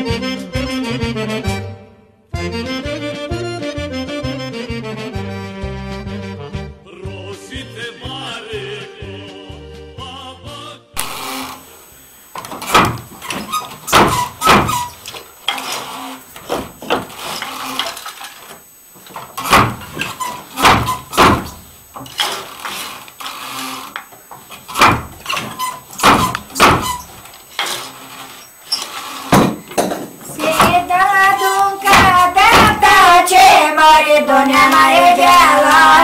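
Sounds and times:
loom frame creaks: 11.0 - 11.7, 12.4 - 33.1
wooden loom knocks: 12.6 - 14.9, 24.7 - 27.0, 31.9 - 32.8.

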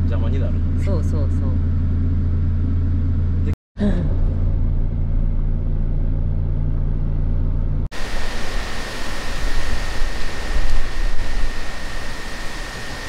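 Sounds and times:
vehicle rumble from inside cabin: 0.0 - 8.0
even hiss: 7.9 - 13.0
thin steady high whine: 7.9 - 13.0.

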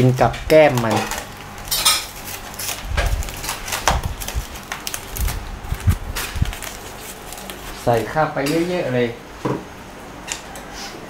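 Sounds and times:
rustling: 0.7 - 8.1.

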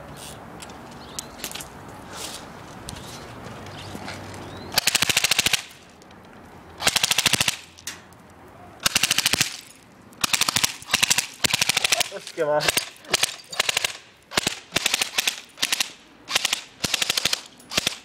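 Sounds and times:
airsoft gun full-auto bursts: 4.8 - 5.7, 6.8 - 7.6, 8.8 - 9.5, 10.2 - 18.0.

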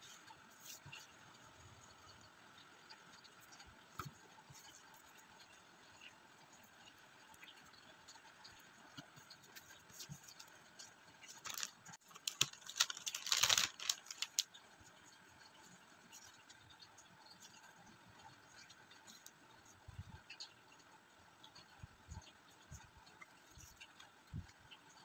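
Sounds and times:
faint rustling of cards: 8.9 - 16.5
plastic bag crinkling: 11.2 - 14.5.

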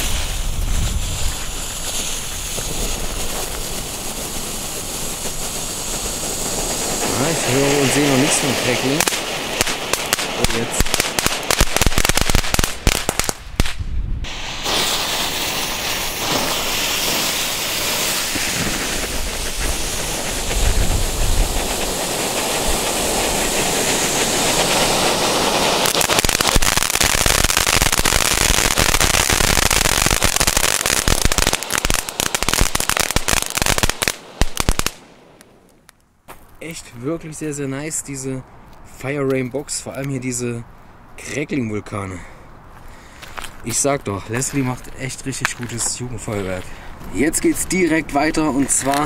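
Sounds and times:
hiss of sparks: 0.0 - 35.2
firework crackling pops: 0.0 - 36.5, 48.4 - 49.0.

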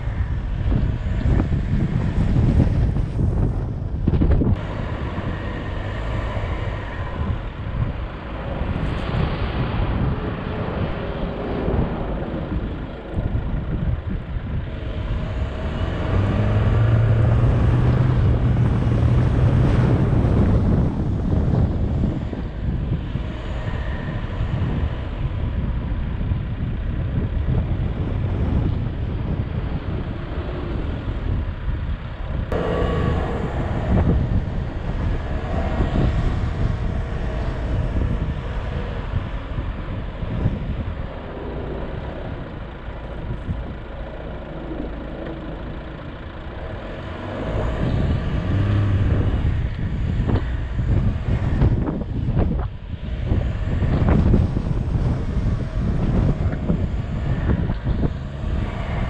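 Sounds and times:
vehicle engine driving: 0.0 - 59.0
wind buffeting microphone: 0.0 - 59.0.

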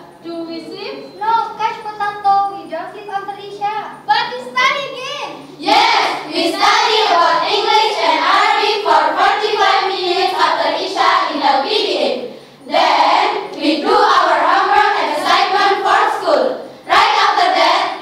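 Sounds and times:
girls singing together: 5.6 - 18.0.

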